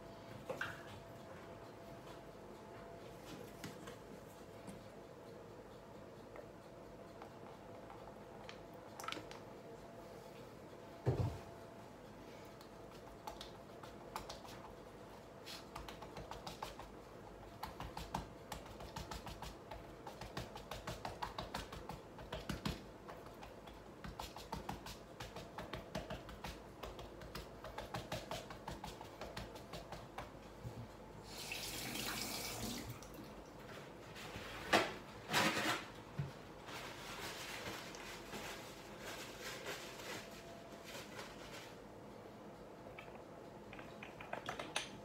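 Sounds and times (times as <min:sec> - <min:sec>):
kitchen tapping and clicking: 0:17.6 - 0:30.4, 0:43.7 - 0:45.0
tap water running: 0:31.3 - 0:33.3.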